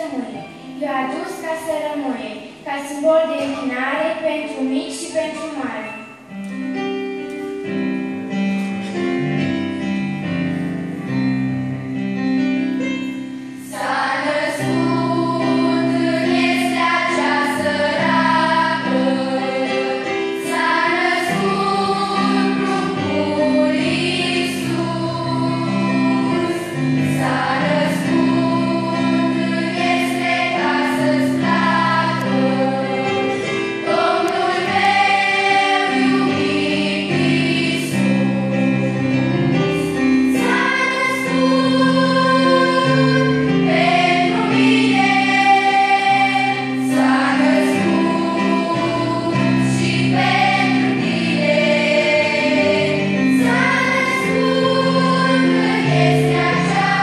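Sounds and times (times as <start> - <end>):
keyboard accompaniment: 0.0 - 57.0
choir singing a hymn: 12.8 - 57.0.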